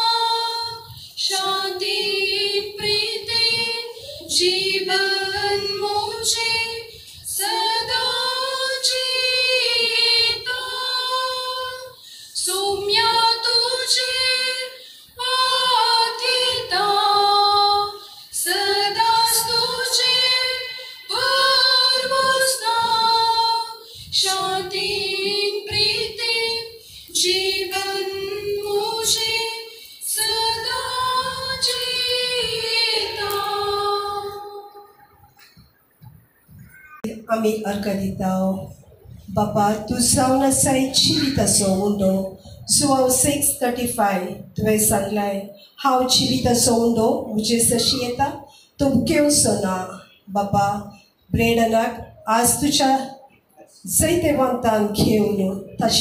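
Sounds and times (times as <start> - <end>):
women singing a hymn: 0.0 - 35.6, 39.3 - 53.1, 53.9 - 56.0.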